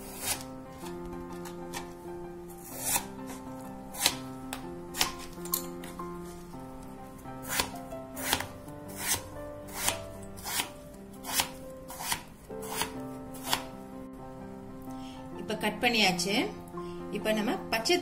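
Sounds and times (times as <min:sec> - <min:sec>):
knife slicing potato on board: 0:00.0 - 0:02.0, 0:02.6 - 0:06.3, 0:07.4 - 0:13.8
soft background music: 0:00.0 - 0:18.0.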